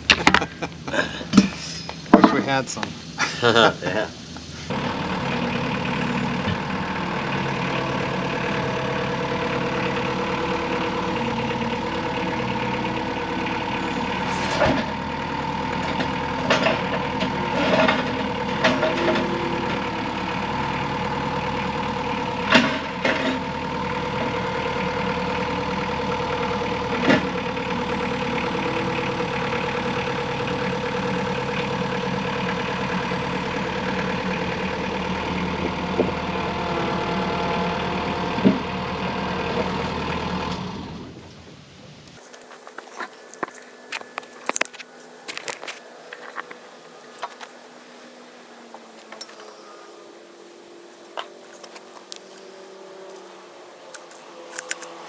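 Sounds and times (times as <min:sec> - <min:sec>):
diesel engine running: 0:00.0 - 0:55.0
sharp knocks and clanks: 0:01.3 - 0:03.0.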